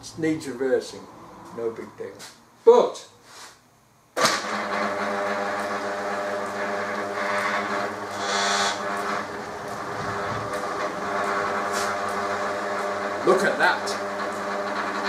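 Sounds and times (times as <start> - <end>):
lathe motor humming: 4.3 - 15.0.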